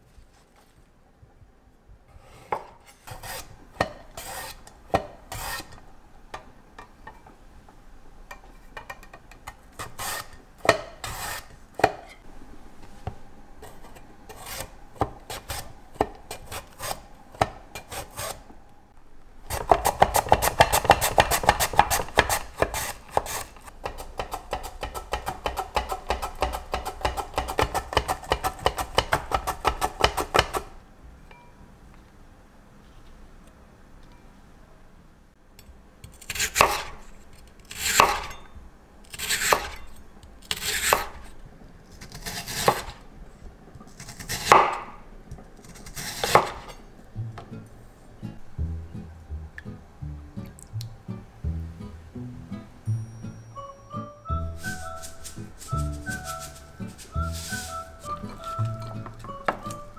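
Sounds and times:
mandoline slicer rasping strokes: 2.2s - 3.5s, 4.2s - 4.7s, 5.3s - 5.8s, 11.0s - 12.2s, 13.6s - 18.5s, 54.5s - 59.0s.

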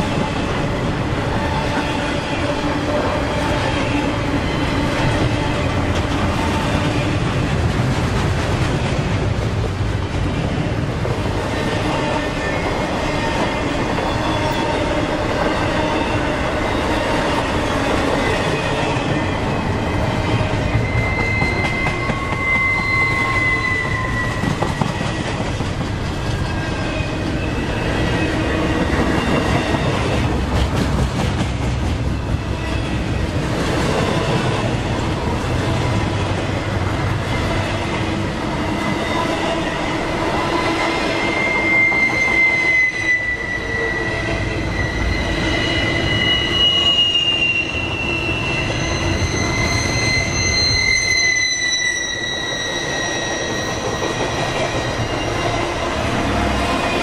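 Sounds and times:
freight train wheels rumbling on rail: 0.0s - 57.0s
high wheel squeals: 19.7s - 25.4s, 38.6s - 57.0s.

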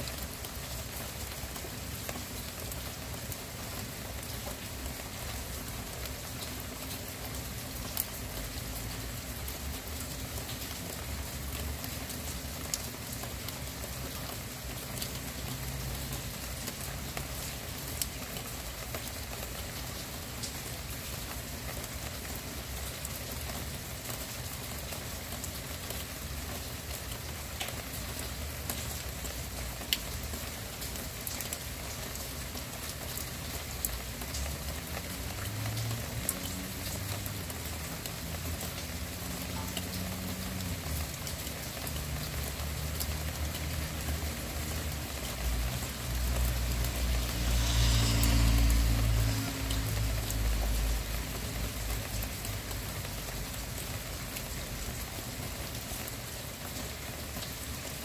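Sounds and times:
steady rain: 0.0s - 58.0s
passing vehicle engine drone: 45.6s - 51.9s.

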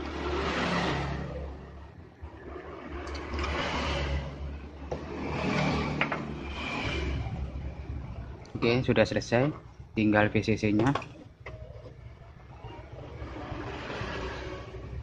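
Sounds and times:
steady low hum: 1.2s - 15.0s
wire scraping and rustling: 2.2s - 9.8s, 10.8s - 15.0s.

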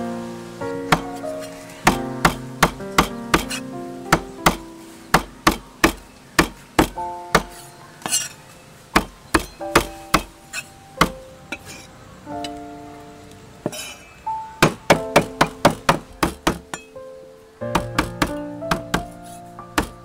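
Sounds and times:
background music: 0.0s - 8.3s, 9.0s - 20.0s
cleaver chopping on wooden block: 1.9s - 4.6s, 5.2s - 8.3s, 9.0s - 10.4s, 14.6s - 16.9s, 17.7s - 19.1s, 19.8s - 20.0s.

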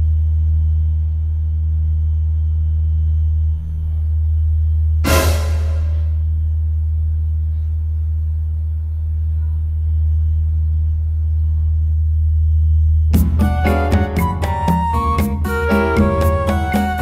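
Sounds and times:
sharp hit: 5.0s - 6.3s
loud low drone: 5.0s - 6.4s.

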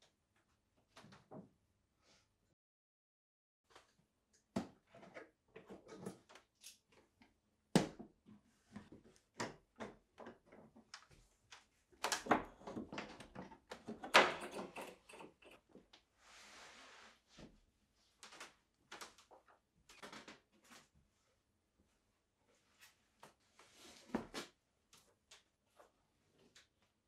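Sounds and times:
clamp hardware rattling: 13.9s - 15.6s.

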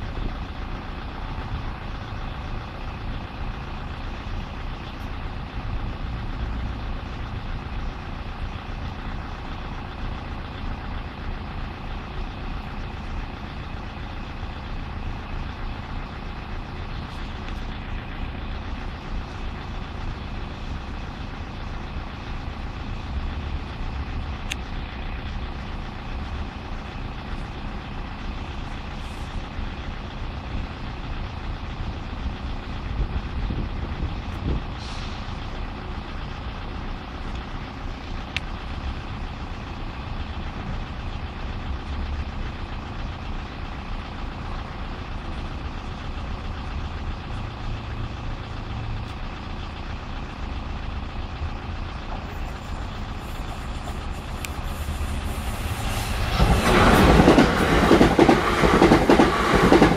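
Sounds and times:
low rumble: 43.9s - 59.9s.

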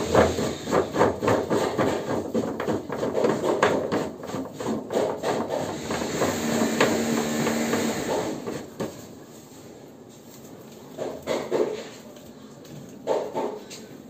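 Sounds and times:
knocking and scraping on valve: 0.0s - 9.1s.

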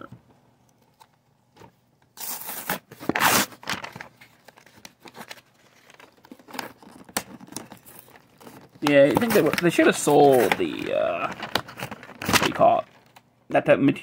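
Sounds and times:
cardboard tearing: 2.2s - 4.0s, 5.0s - 12.9s
cardboard crinkling and scraping: 2.2s - 13.2s.

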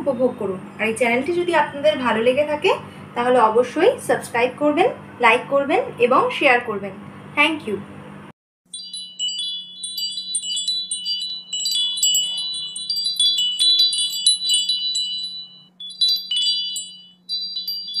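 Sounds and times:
wind chimes tinkling: 8.7s - 18.0s.

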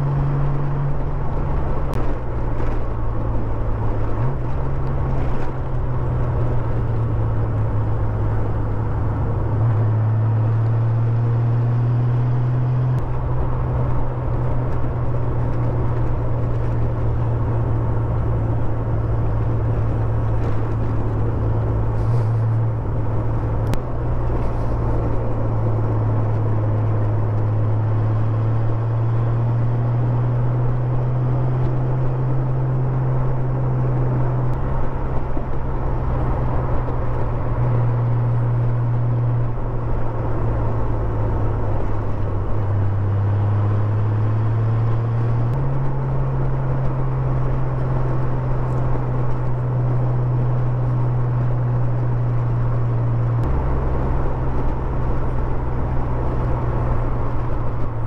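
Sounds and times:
motorcycle engine cruising: 0.0s - 58.0s
wind and road noise: 0.0s - 58.0s.

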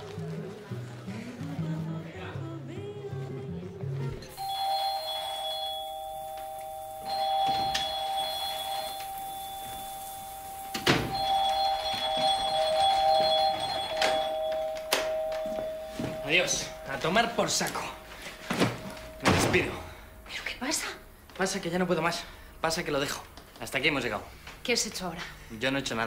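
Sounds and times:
electric doorbell ringing: 4.3s - 20.2s.

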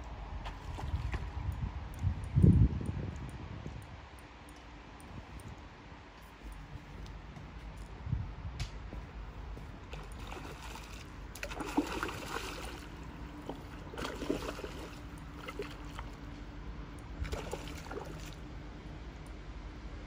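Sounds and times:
fish splashing in water: 9.8s - 16.3s, 17.2s - 18.5s.

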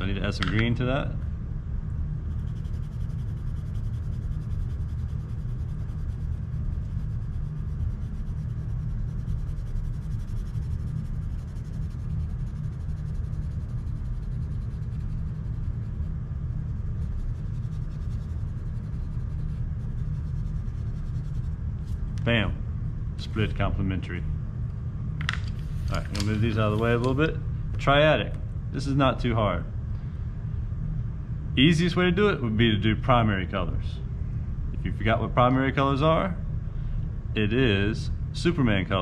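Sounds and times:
steady low rumble: 0.0s - 39.0s
pencil scratching on paper: 2.3s - 16.1s, 16.7s - 21.6s.

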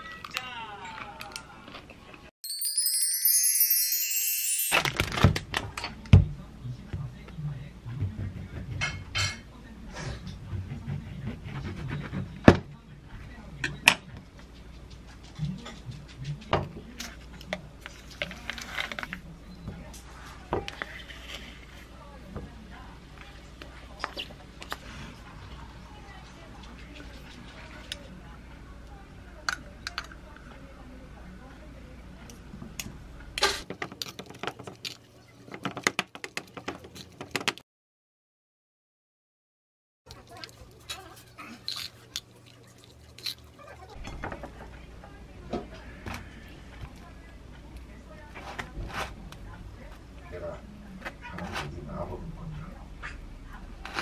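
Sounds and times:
knife sawing through bread: 10.9s - 12.4s.

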